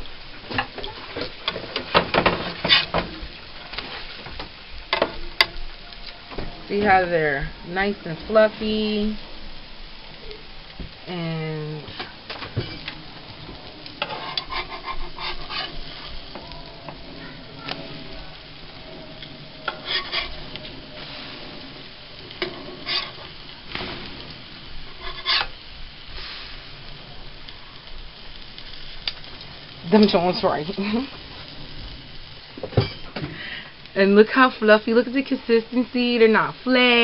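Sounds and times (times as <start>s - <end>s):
pancakes sizzling on a griddle: 0.0s - 37.0s
metal spatula scraping griddle: 0.8s - 3.1s, 11.9s - 13.0s, 13.6s - 26.6s.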